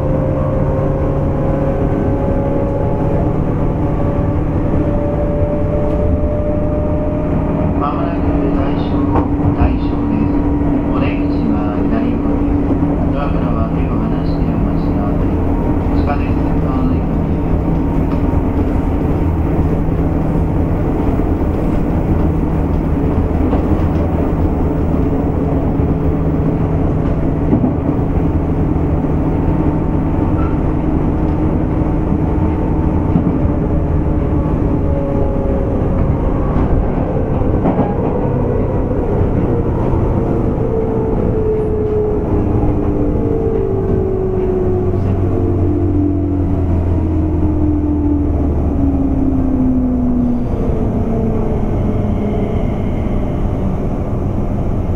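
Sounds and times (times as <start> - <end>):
wheels rumbling on rail: 0.0 - 54.9.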